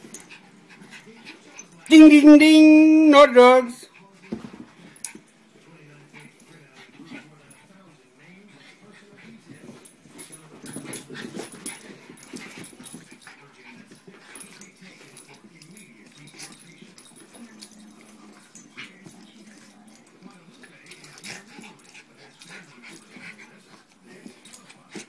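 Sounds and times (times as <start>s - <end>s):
small dogs play-wrestling: 0.0s - 2.1s, 3.9s - 25.0s.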